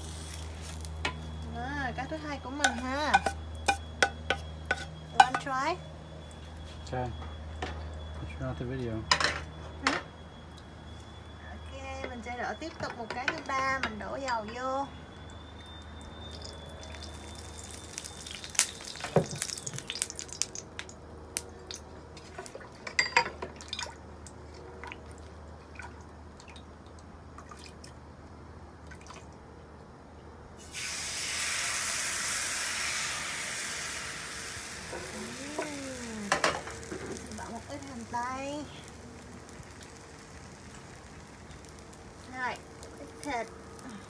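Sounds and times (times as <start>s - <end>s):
batter sizzling in hot oil: 0.0s - 7.0s, 12.2s - 22.3s, 30.6s - 44.0s
whisk and ladle clinking on metal pot: 2.6s - 5.4s.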